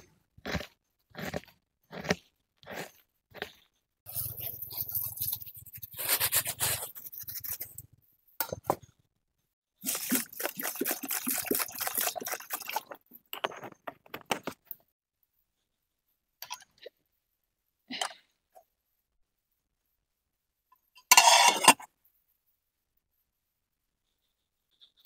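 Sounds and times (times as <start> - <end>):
water pouring: 9.8 - 13.7.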